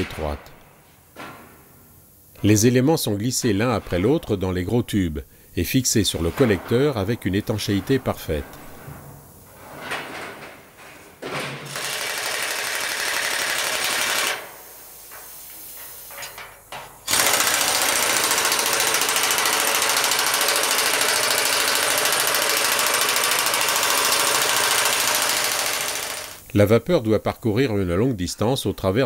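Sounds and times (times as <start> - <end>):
pneumatic tool hammering: 11.4 - 26.5.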